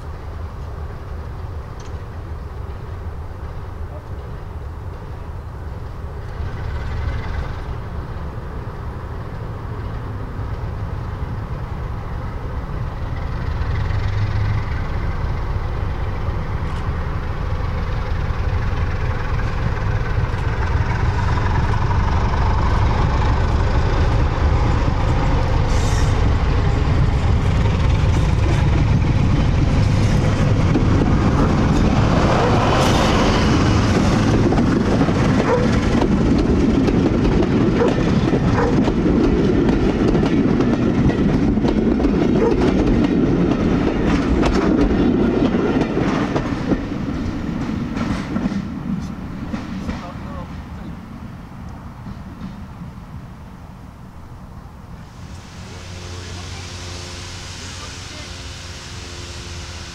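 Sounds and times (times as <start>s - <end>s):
train wheels rolling: 0.0s - 53.6s
diesel locomotive engine: 0.0s - 59.9s.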